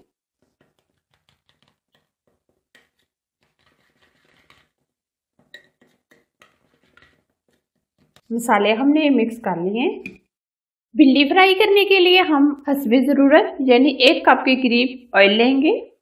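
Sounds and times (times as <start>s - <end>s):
spoon scraping in bowl: 0.0s - 8.3s.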